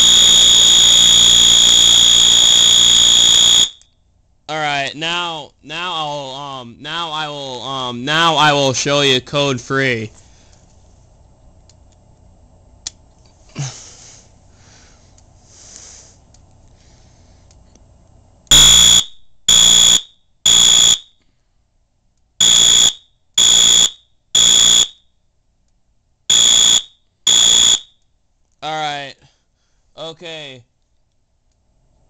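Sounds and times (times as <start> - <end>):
fire alarm horn blasts: 0.0 - 3.8, 18.5 - 21.2, 22.4 - 25.0, 26.3 - 27.9.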